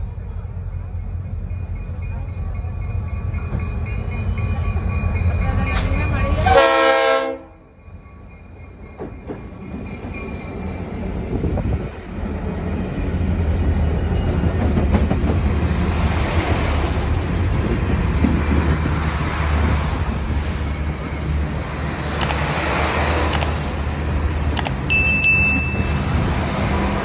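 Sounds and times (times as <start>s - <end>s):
diesel locomotive rumble: 0.0s - 27.0s
train wheels squealing: 13.0s - 14.8s, 17.1s - 22.2s, 24.1s - 27.0s.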